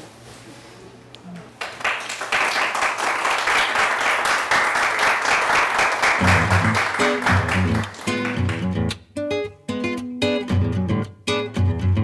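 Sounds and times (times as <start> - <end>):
people clapping: 1.3 - 9.0.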